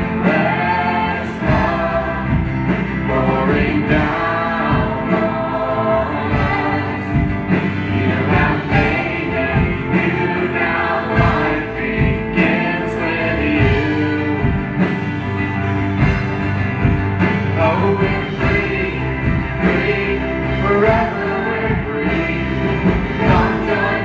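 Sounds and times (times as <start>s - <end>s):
voices singing: 0.0s - 14.8s, 17.2s - 24.0s
drums keeping steady beat: 0.0s - 24.0s
worship band playing: 0.0s - 24.0s.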